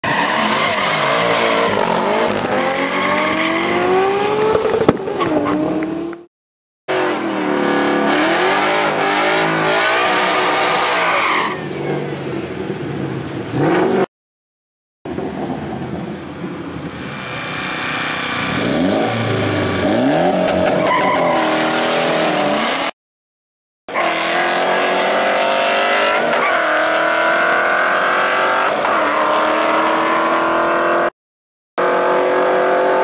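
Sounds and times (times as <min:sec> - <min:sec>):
car engine revving hard: 0:06.9 - 0:11.1, 0:17.0 - 0:22.9, 0:23.9 - 0:31.1, 0:31.8 - 0:33.0.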